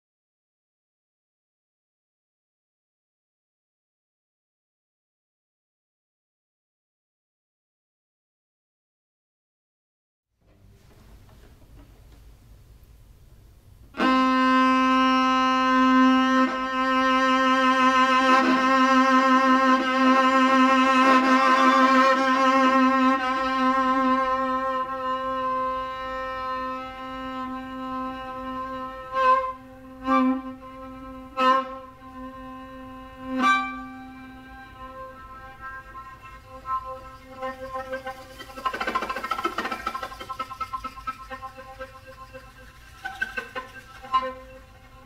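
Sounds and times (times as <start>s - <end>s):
bowed strings sustained note: 14.0s - 45.0s.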